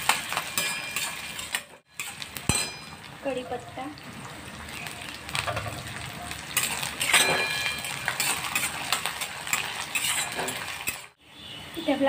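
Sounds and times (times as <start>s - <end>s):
metal spatula scraping pan: 0.0s - 3.0s, 6.5s - 11.2s
frying in hot oil: 0.0s - 12.0s
pan ringing from strike: 2.5s - 3.0s, 7.2s - 7.9s.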